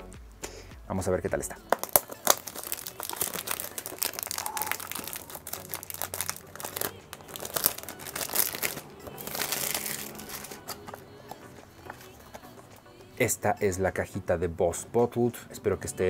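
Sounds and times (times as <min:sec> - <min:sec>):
cellophane crinkling: 0:01.7 - 0:11.0
cellophane tearing: 0:01.7 - 0:11.0.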